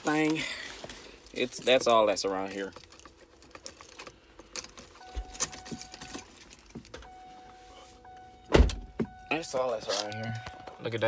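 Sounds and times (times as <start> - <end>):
faint steady whine: 0.0 - 11.0
keys jangling: 2.4 - 6.7.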